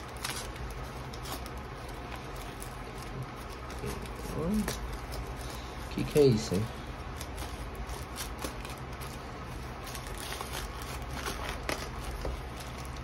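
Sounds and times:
tape tearing: 0:00.0 - 0:02.7, 0:09.8 - 0:13.0
plastic crinkling: 0:00.0 - 0:13.0.

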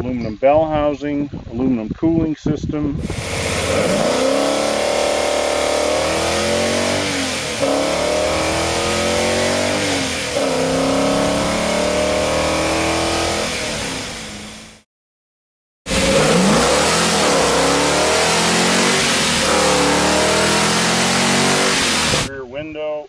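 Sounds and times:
car engine accelerating hard: 0:03.0 - 0:14.8, 0:15.9 - 0:22.3.

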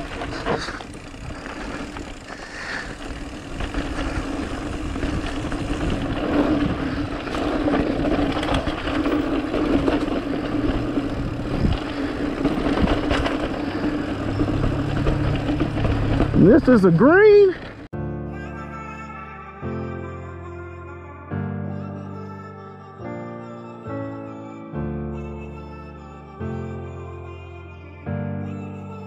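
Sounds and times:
bike knocks and rattles: 0:00.0 - 0:17.9
bike tyres and wind rushing: 0:00.0 - 0:17.9.

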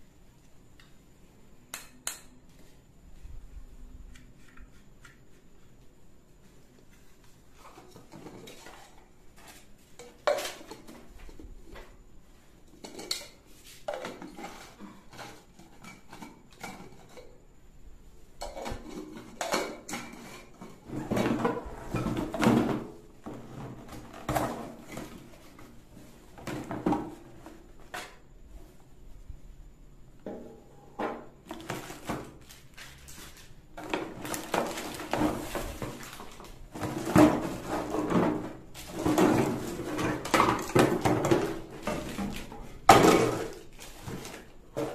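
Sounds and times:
plastic jars clattering on a table: 0:07.7 - 0:11.8, 0:12.8 - 0:17.3, 0:18.4 - 0:25.7, 0:33.8 - 0:44.9.

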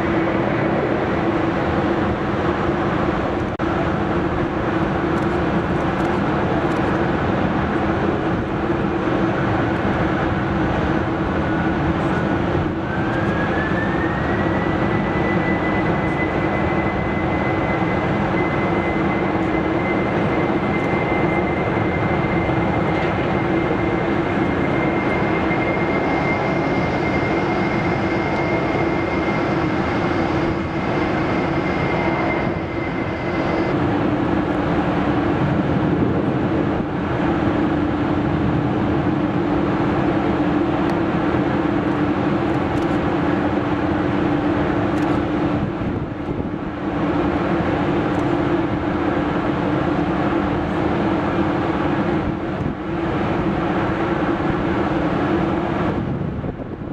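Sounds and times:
high engine whine: 0:00.0 - 0:56.9
jet engines rumbling: 0:00.0 - 0:56.9.

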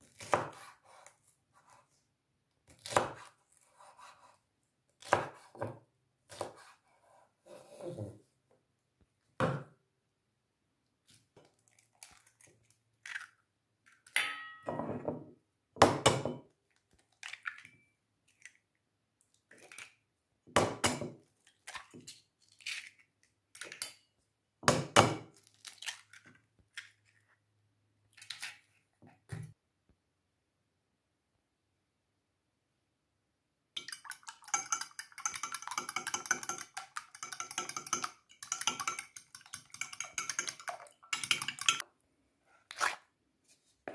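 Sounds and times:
eggs cracking: 0:33.8 - 0:41.8.

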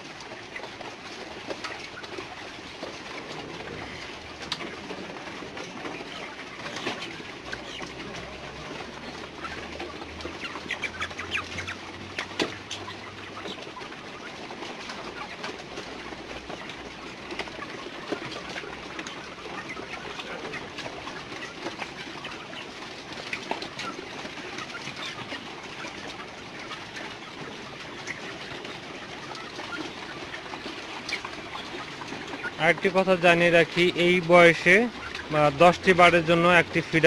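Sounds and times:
beaks pecking feed: 0:00.0 - 0:37.0
chickens calling: 0:00.0 - 0:37.0.

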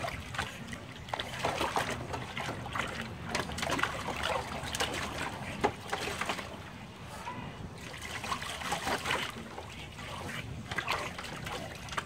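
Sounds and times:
water splashing in plastic tub: 0:00.0 - 0:12.0.

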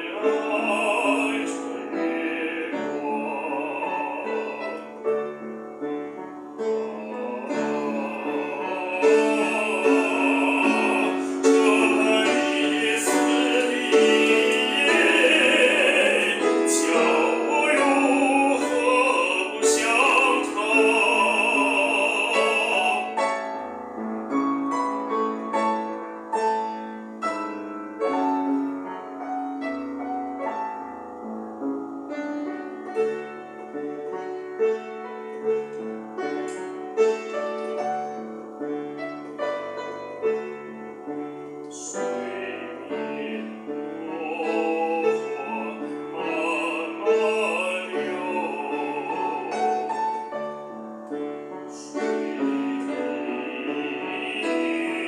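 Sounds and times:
man singing classically: 0:00.0 - 0:05.5, 0:06.5 - 0:23.7, 0:39.2 - 0:55.0
upright piano playing: 0:00.0 - 0:55.0.

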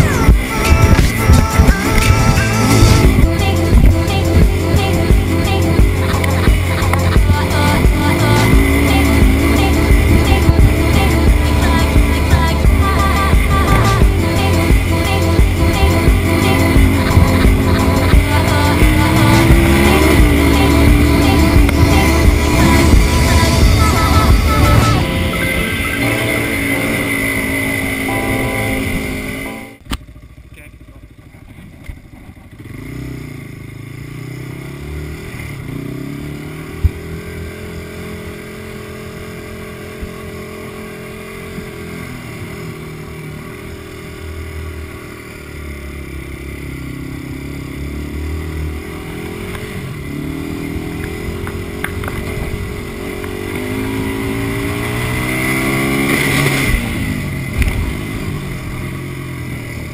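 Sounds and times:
background music: 0:00.0 - 0:29.8
atv engine revving: 0:00.0 - 0:59.9.

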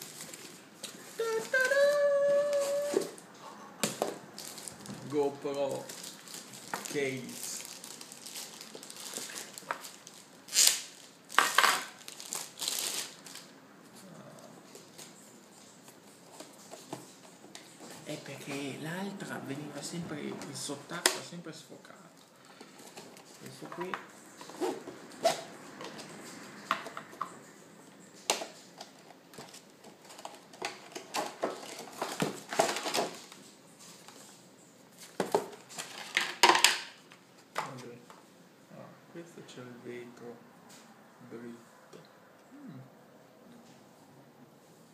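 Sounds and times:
plastic bag crinkling: 0:04.4 - 0:13.5, 0:29.4 - 0:34.1.

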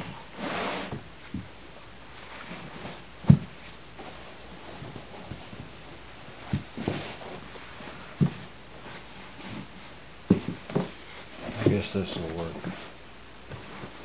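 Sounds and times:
canvas rustling and handling: 0:00.0 - 0:14.0.

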